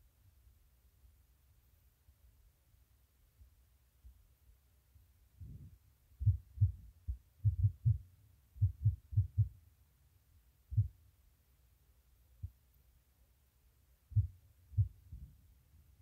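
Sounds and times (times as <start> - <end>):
faint low rumble: 0.0 - 16.0
low dull thumps: 5.4 - 8.0, 8.6 - 9.6, 14.1 - 15.4.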